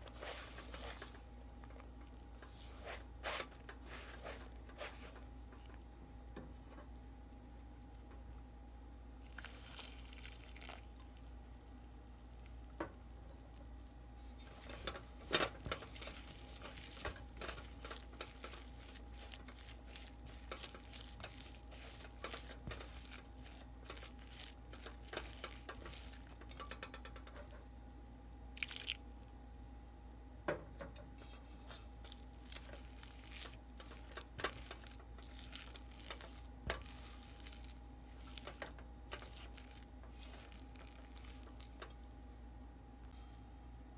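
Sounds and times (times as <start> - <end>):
spatula scraping dough in bowl: 0.0 - 6.0, 14.2 - 26.6
faint steady hum: 0.0 - 43.9.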